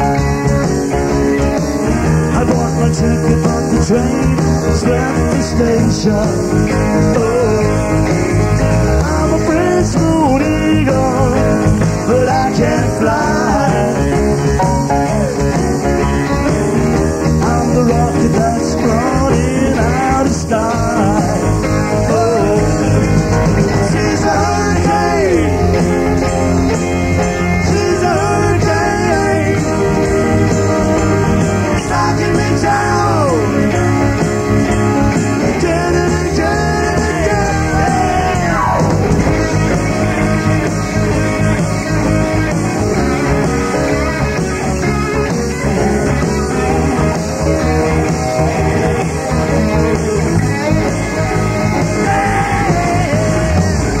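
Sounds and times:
rock band playing live: 0.0 - 54.0
sliding bending lead guitar line: 0.0 - 54.0.

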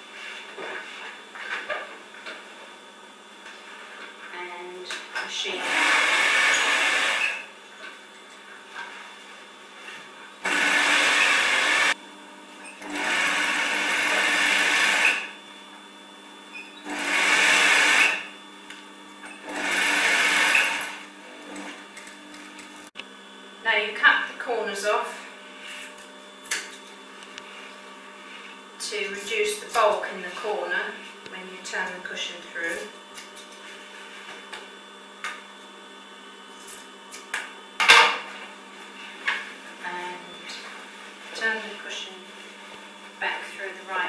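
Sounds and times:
sewing machine stitching: 5.6 - 7.4, 10.4 - 11.9, 12.8 - 15.3, 19.4 - 21.7.

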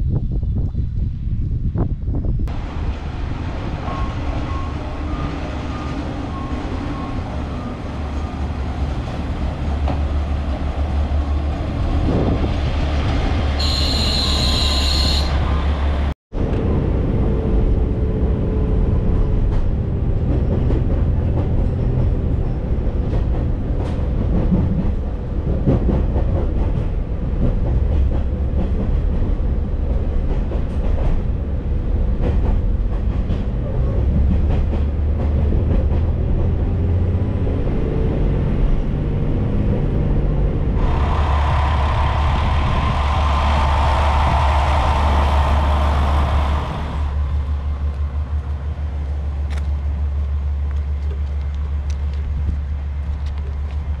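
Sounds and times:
train engine rumble: 0.0 - 54.0
train interior hum: 0.0 - 54.0
brakes squealing: 13.6 - 16.1
wheels clicking over rail joints: 47.4 - 54.0.

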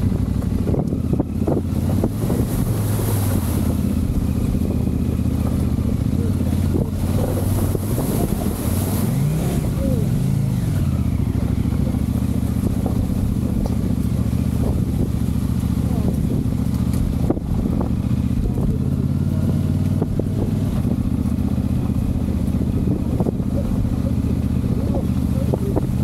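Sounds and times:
motorcycle engine running: 0.0 - 26.0.

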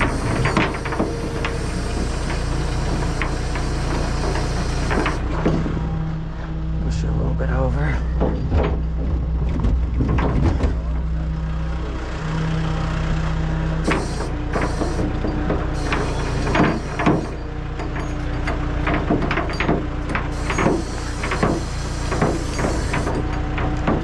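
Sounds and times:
diesel engine and hydraulics hum: 0.0 - 24.0
toolbox clunking and rattling: 8.1 - 10.9.

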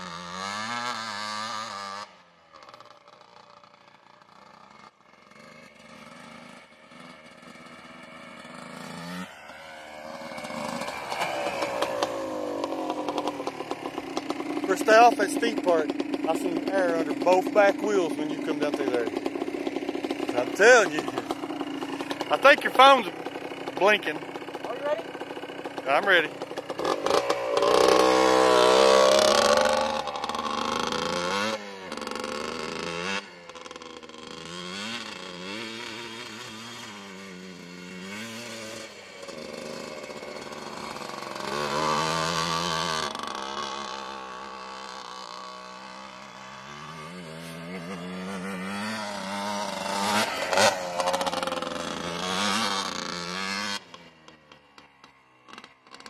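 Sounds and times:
quad engine revving: 0.0 - 56.0
tyres on gravel: 47.3 - 54.0.

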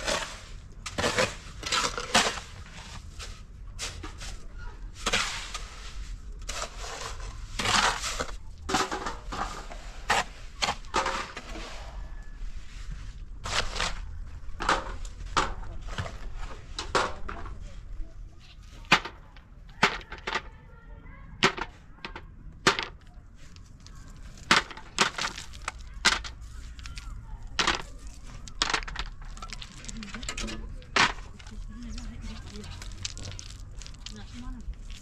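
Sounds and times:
stones clacking together: 18.8 - 20.5, 21.4 - 35.0.

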